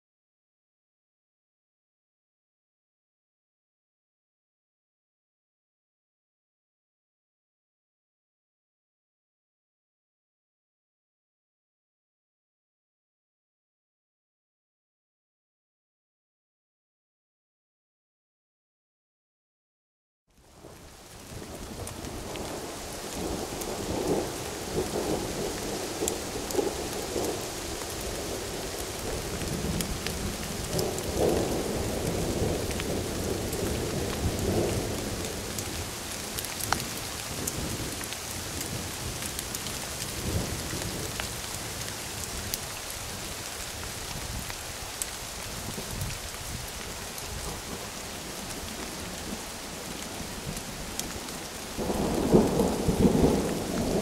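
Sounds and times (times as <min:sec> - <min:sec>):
steady rain falling: 0:20.3 - 0:54.0
rumbles of thunder: 0:20.6 - 0:42.6, 0:47.2 - 0:54.0.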